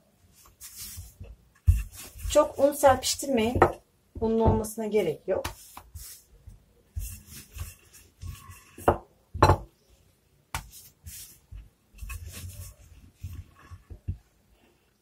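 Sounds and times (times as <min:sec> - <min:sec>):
rolling pin rolling dough: 0:00.3 - 0:15.0
knocks on countertop: 0:03.5 - 0:04.7, 0:08.9 - 0:09.7.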